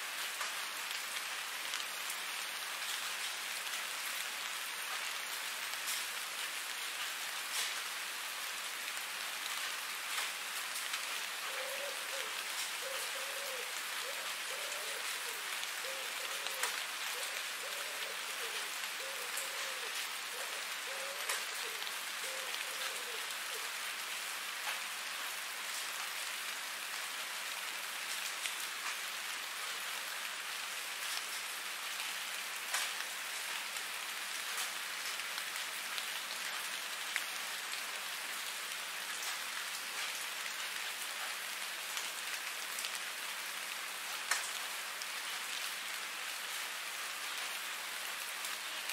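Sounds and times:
steady rain hiss: 0.0 - 48.9
raindrop clicks: 21.2 - 21.5, 44.2 - 44.6.

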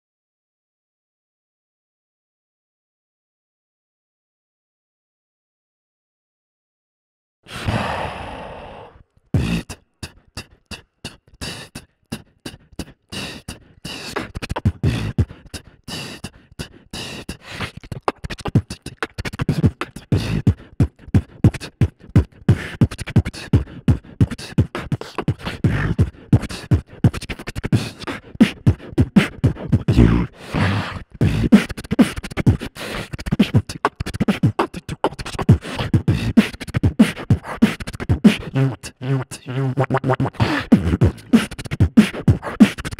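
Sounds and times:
beatbox percussion clicks: 9.4 - 42.9.

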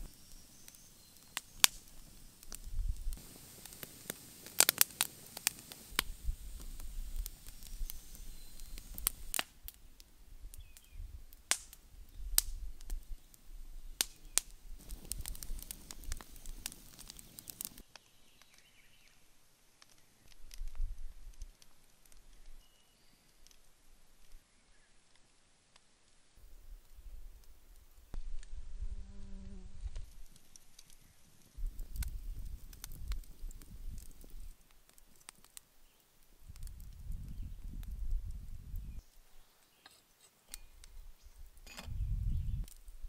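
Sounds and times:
wood fire crackling and popping: 0.0 - 18.8, 19.6 - 22.6, 23.2 - 24.4, 25.0 - 28.6, 29.8 - 43.0
faint low rumble: 28.2 - 30.1.

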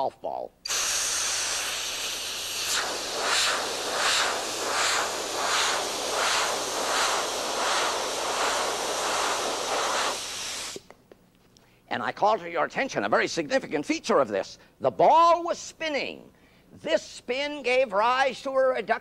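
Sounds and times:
compressed air jet hissing: 0.7 - 10.9.

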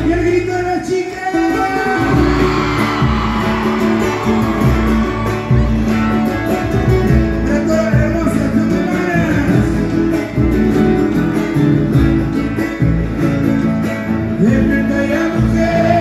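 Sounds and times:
strummed guitars: 0.0 - 16.0
people singing: 14.4 - 16.0.

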